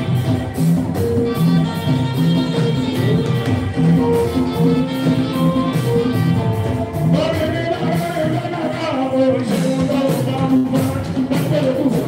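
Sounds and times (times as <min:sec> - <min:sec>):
band accompaniment: 0:00.0 - 0:12.0
man singing into microphone: 0:07.0 - 0:12.0.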